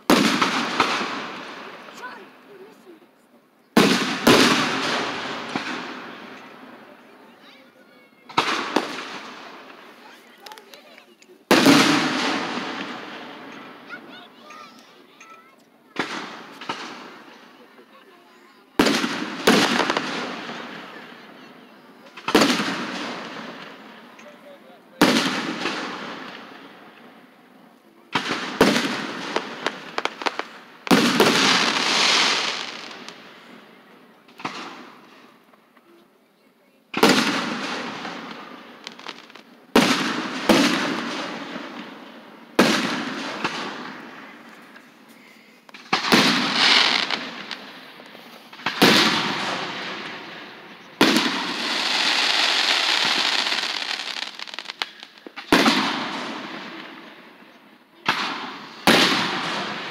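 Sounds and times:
fireworks bangs: 0.0 - 3.0, 3.7 - 36.0, 36.9 - 59.9
fireworks crackling: 0.0 - 59.9.

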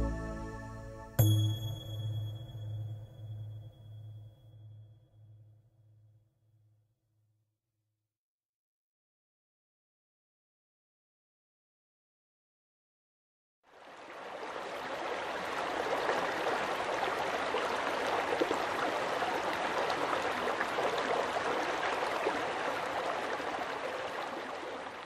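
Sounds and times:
river water flowing over stones: 13.7 - 25.0.

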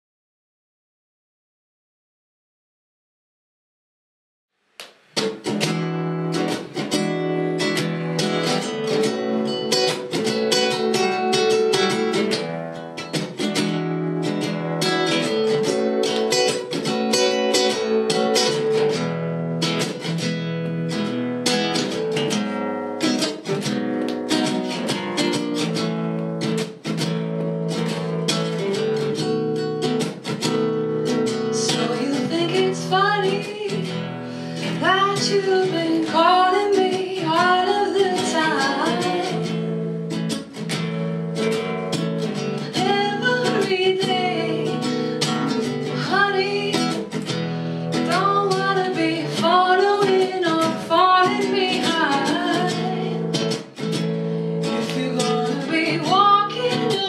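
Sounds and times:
acoustic guitar strumming: 5.1 - 57.0
woman singing: 31.2 - 40.0, 42.6 - 53.6, 54.6 - 57.0.

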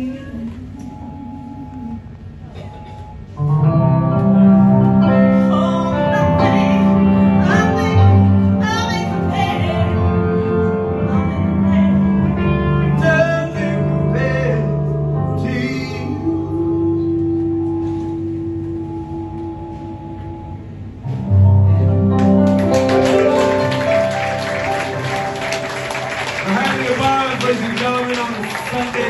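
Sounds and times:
electric keyboard chords: 3.3 - 29.0
woman and man singing: 15.4 - 19.5.

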